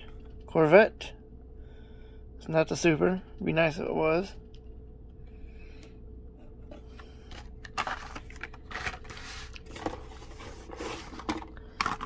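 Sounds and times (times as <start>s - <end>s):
plastic and cardboard rustling: 7.3s - 12.0s.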